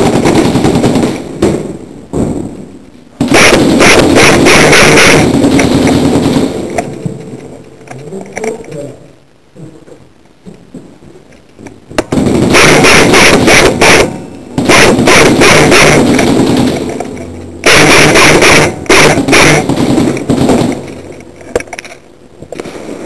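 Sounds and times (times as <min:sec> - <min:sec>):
airsoft gun full-auto bursts: 0:00.0 - 0:01.2, 0:03.2 - 0:06.9, 0:12.1 - 0:21.1.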